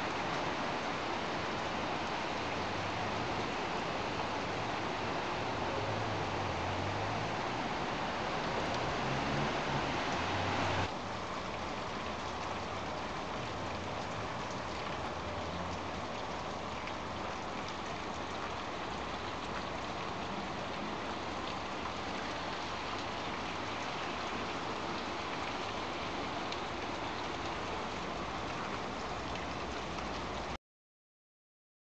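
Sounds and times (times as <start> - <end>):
heavy rain hiss: 0.0 - 16.1.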